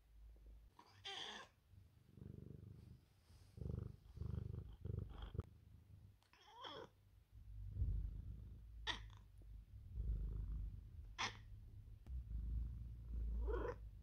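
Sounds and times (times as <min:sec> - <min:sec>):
cat meowing: 0:00.8 - 0:01.5, 0:06.3 - 0:06.9, 0:13.4 - 0:13.8
cat purring: 0:01.8 - 0:14.0.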